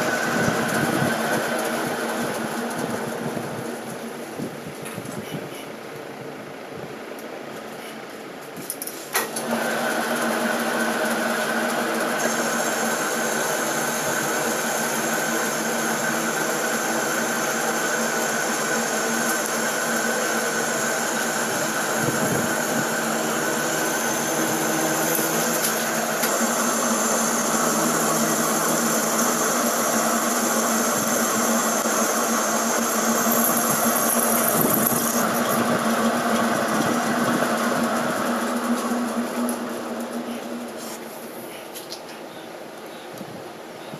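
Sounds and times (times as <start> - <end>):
metal lathe humming and whining: 0.0 - 4.4, 9.3 - 40.9
turning tool cutting metal: 9.8 - 40.2.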